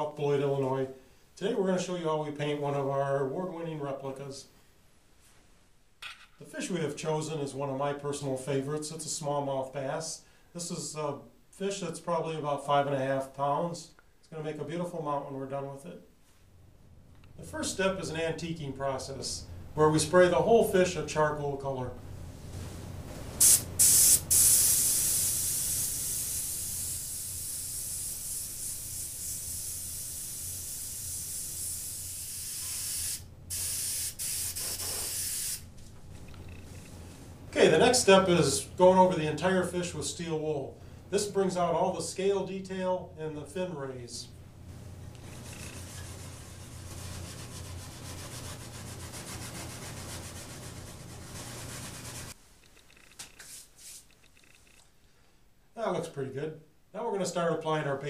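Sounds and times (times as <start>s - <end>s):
low steady hum: 10.6s - 23.9s, 35.6s - 53.0s
airbrush spraying hiss: 23.4s - 35.7s, 53.4s - 54.2s
steel wool scrubbing: 45.4s - 52.4s.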